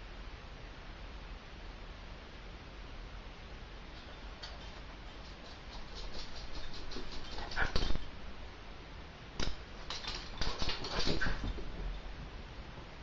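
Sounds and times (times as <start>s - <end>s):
pet making quick clicks: 4.0s - 8.1s, 9.4s - 11.8s.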